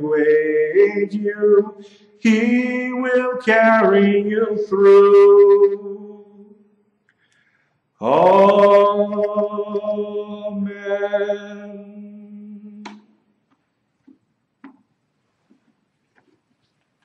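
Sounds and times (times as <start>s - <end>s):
man singing amen: 0.0s - 6.5s, 8.0s - 13.0s.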